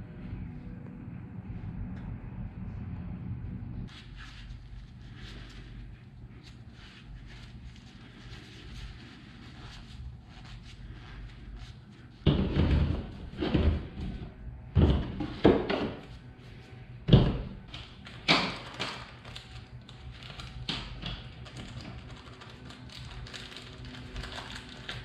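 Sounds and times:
shop towel unwrapping: 0:03.9 - 0:12.2, 0:18.0 - 0:25.0
plastic bag rustling: 0:18.0 - 0:25.0.

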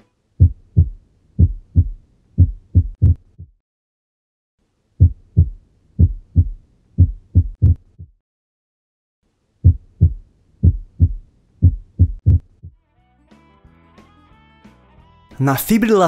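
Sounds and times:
heartbeat: 0:00.4 - 0:03.6, 0:05.0 - 0:08.2, 0:09.6 - 0:12.8.

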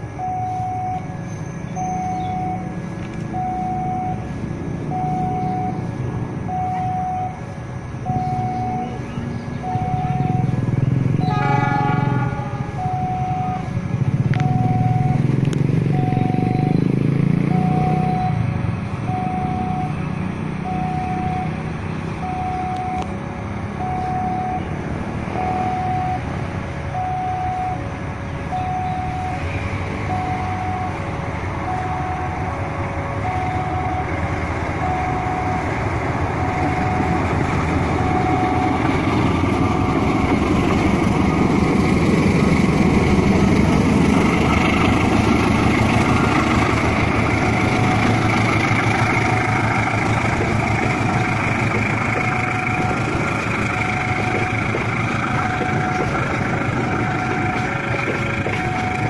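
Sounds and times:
locomotive engine rumble: 0:00.0 - 0:59.0
electronic two-tone warning signal: 0:00.2 - 0:01.2, 0:01.8 - 0:02.7, 0:03.4 - 0:04.3, 0:04.9 - 0:05.8, 0:06.5 - 0:07.5, 0:08.1 - 0:09.0, 0:09.6 - 0:10.6, 0:11.2 - 0:13.8, 0:14.4 - 0:15.2, 0:15.9 - 0:16.8, 0:17.5 - 0:18.5, 0:19.1 - 0:20.0, 0:20.6 - 0:21.6, 0:22.2 - 0:23.1, 0:23.8 - 0:24.7, 0:25.3 - 0:26.3, 0:27.0 - 0:27.8, 0:28.5 - 0:29.4, 0:30.1 - 0:31.0, 0:31.6 - 0:32.6, 0:33.2 - 0:34.2, 0:34.8 - 0:35.7, 0:38.0 - 0:38.9, 0:55.3 - 0:57.9, 0:58.5 - 0:59.0
train wheels on rails: 0:29.2 - 0:59.0.

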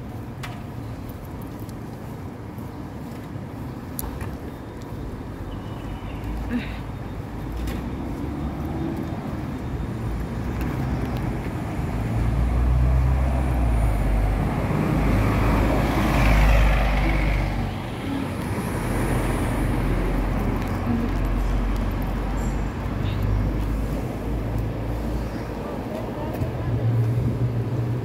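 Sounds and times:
vehicles driving past: 0:00.0 - 0:28.0.

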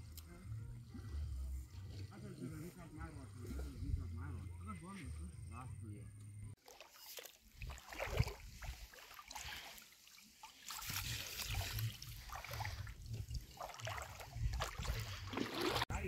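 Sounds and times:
water splashing and trickling: 0:06.6 - 0:16.0.

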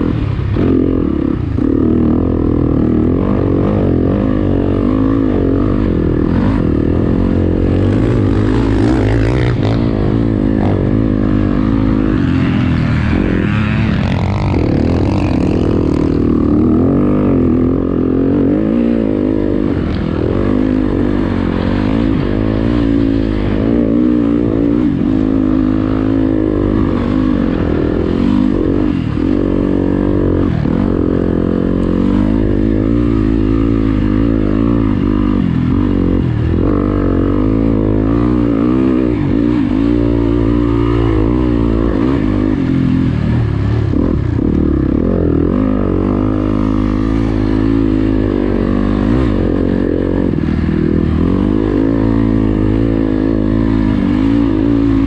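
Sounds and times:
motocross bike engine revving: 0:00.0 - 0:55.0.

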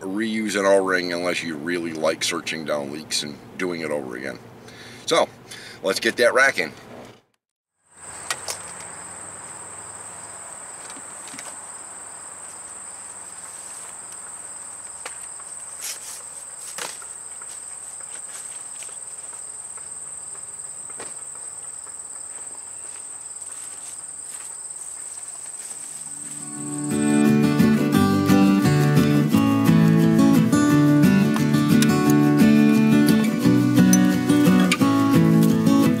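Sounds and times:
high-pitched insect drone: 0:19.4 - 0:29.7.

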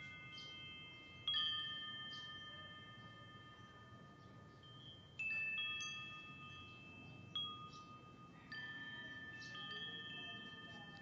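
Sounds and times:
metal wind chime ringing: 0:00.0 - 0:11.0.

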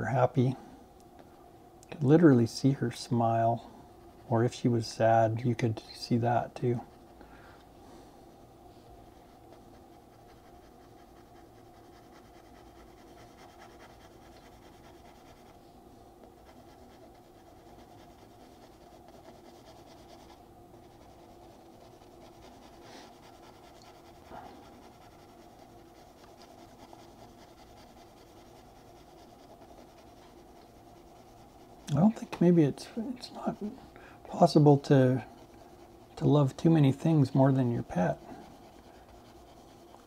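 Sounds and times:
steady low hum: 0:00.0 - 0:40.0
pencil scratching on paper: 0:09.2 - 0:15.6, 0:16.4 - 0:32.2, 0:34.5 - 0:40.0.

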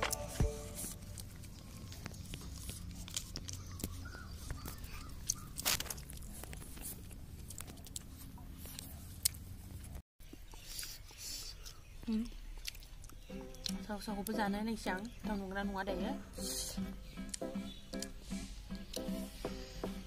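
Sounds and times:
background music: 0:00.0 - 0:01.2, 0:13.3 - 0:20.0
chewing and mouth noises: 0:00.9 - 0:14.4.

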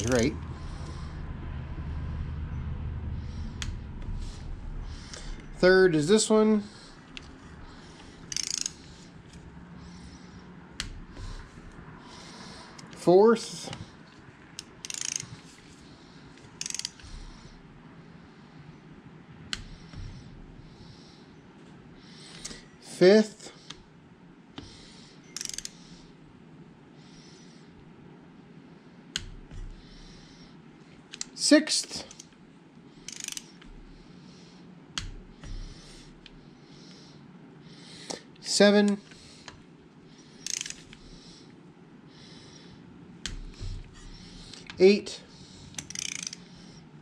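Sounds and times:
sharp wrench release click: 0:08.3 - 0:08.8, 0:14.6 - 0:15.3, 0:16.6 - 0:17.0, 0:25.4 - 0:25.8, 0:33.1 - 0:33.5, 0:40.5 - 0:40.8, 0:45.8 - 0:46.4
torque wrench ratchet clicking: 0:08.3 - 0:08.8, 0:14.6 - 0:15.3, 0:16.6 - 0:17.0, 0:25.4 - 0:25.8, 0:33.1 - 0:33.6, 0:40.4 - 0:41.0, 0:45.7 - 0:46.5.

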